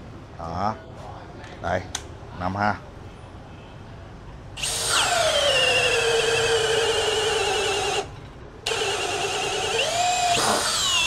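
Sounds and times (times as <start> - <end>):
hammer drill boring into wood: 4.6 - 8.1, 8.7 - 11.0.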